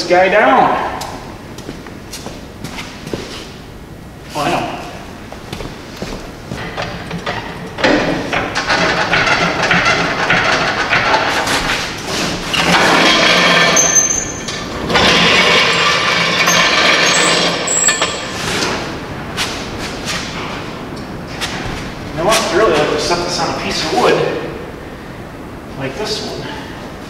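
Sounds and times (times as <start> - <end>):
short high squeaks: 15.6 - 18.5.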